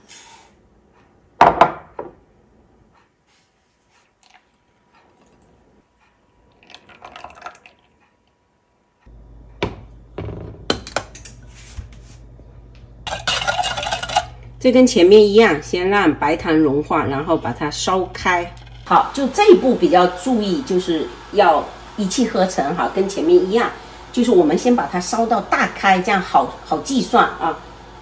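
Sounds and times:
electric stove humming: 0:05.4 - 0:28.0
liquid pouring into pan: 0:06.5 - 0:08.0.

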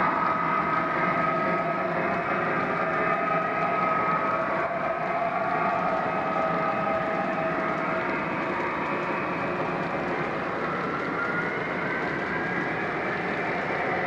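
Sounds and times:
model train wheels rushing on rails: 0:00.0 - 0:14.0.

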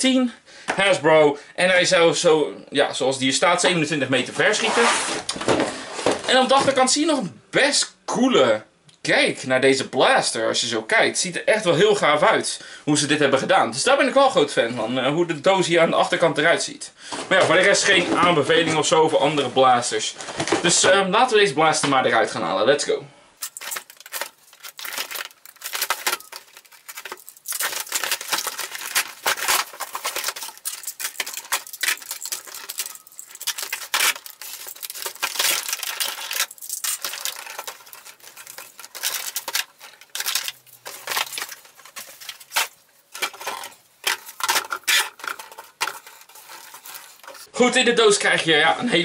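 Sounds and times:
cardboard and plastic packaging rustling: 0:04.5 - 0:06.7, 0:23.4 - 0:47.5
loose parts clattering on table: 0:23.4 - 0:47.5.

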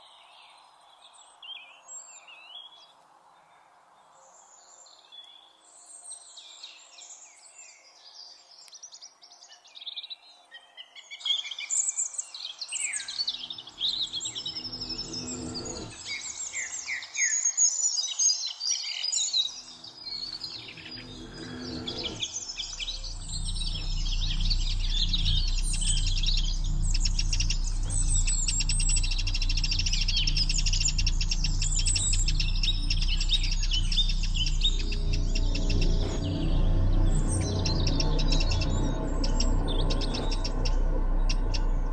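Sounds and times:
songbirds singing: 0:00.0 - 0:41.9
low steady music: 0:13.4 - 0:16.9, 0:19.6 - 0:41.9.

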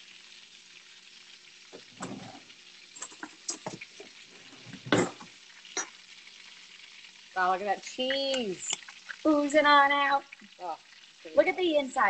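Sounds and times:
oil sizzling in a frying pan: 0:00.0 - 0:12.0.

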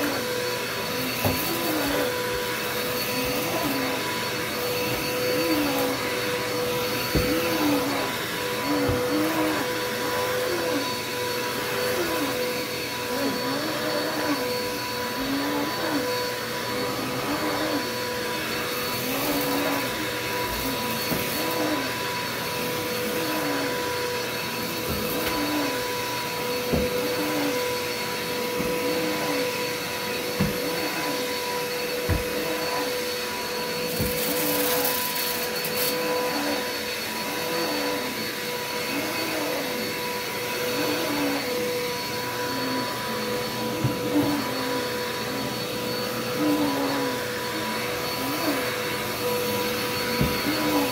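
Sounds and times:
upright vacuum cleaner on carpet: 0:00.0 - 0:50.9
vacuum cleaner knocks: 0:07.0 - 0:07.5, 0:26.6 - 0:27.0, 0:30.3 - 0:30.8, 0:32.0 - 0:32.4, 0:50.1 - 0:50.7.

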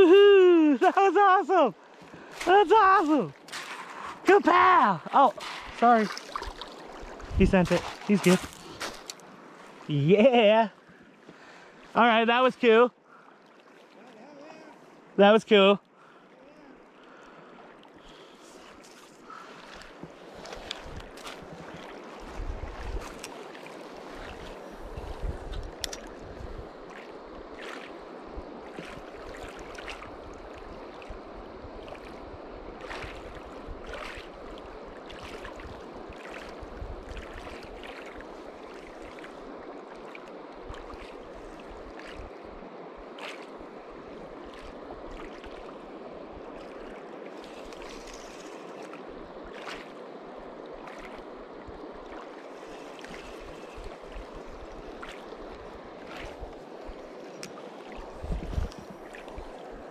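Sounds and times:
waves lapping on gravel shore: 0:02.2 - 0:10.1, 0:18.3 - 0:30.2, 0:32.8 - 0:42.4, 0:46.7 - 0:50.2.

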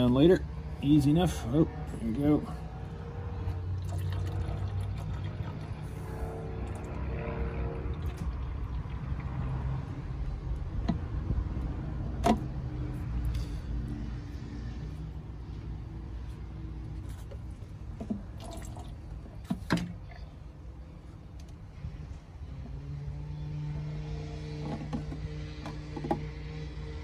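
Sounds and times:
coolant trickling into bottle: 0:03.7 - 0:05.8, 0:18.1 - 0:19.2.

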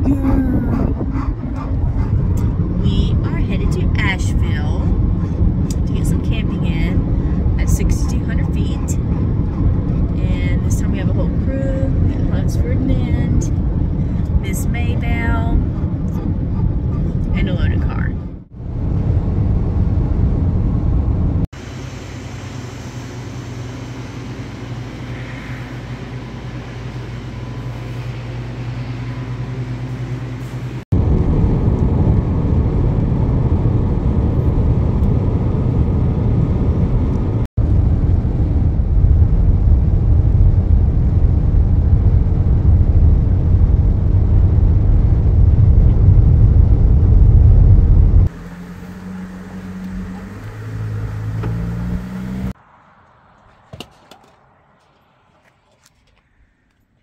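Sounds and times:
car road noise rumble: 0:00.0 - 0:56.6.

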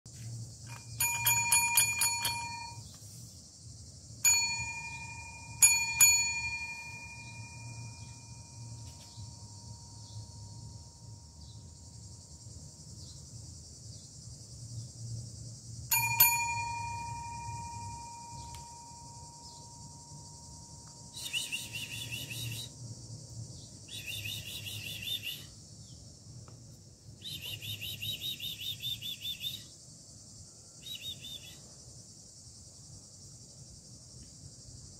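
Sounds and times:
small metal bell ringing: 0:00.6 - 0:02.9, 0:04.2 - 0:10.1, 0:15.9 - 0:21.3
high fast-pulsed chirping: 0:20.9 - 0:22.8.

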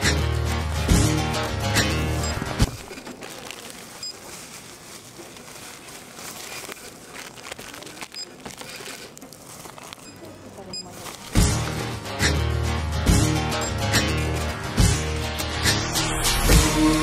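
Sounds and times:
plastic packaging crinkling: 0:02.4 - 0:12.0.

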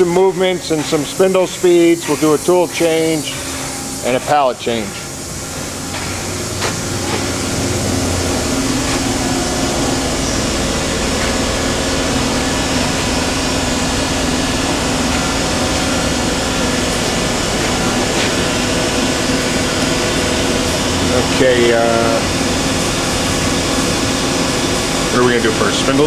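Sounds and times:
machine humming at idle: 0:00.0 - 0:26.0.

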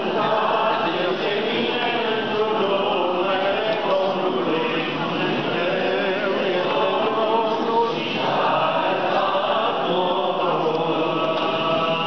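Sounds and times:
voices chanting slow melody: 0:00.0 - 0:12.0.

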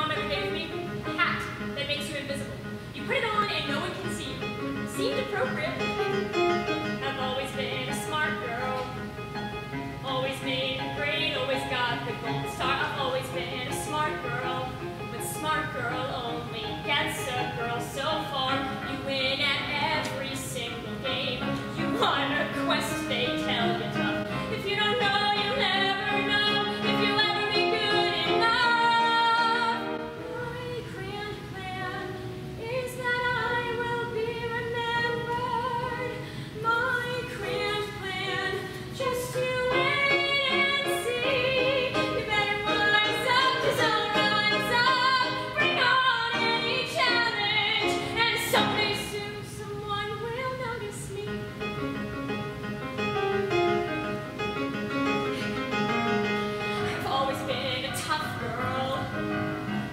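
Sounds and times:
young woman singing: 0:00.0 - 0:05.8, 0:06.8 - 0:09.1, 0:10.0 - 0:51.6, 0:56.8 - 0:59.4
electric keyboard: 0:51.3 - 0:59.9.

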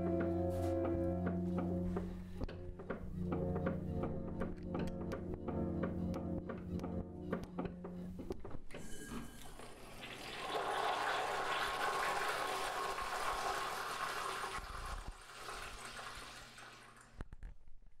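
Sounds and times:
toilet flushing: 0:08.8 - 0:17.2.

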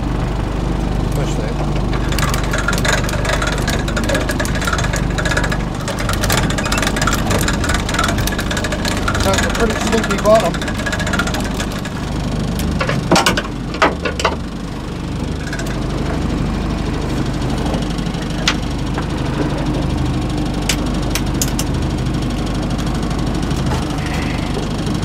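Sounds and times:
motor running: 0:00.0 - 0:25.0
sharp clicks and knocks: 0:01.6 - 0:14.4, 0:17.6 - 0:19.9, 0:20.6 - 0:21.8.

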